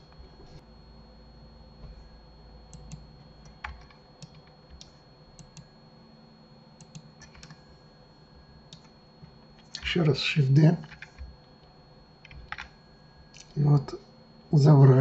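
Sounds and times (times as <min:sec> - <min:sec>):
keyboard and mouse clicks: 0:02.7 - 0:05.7, 0:06.8 - 0:07.6.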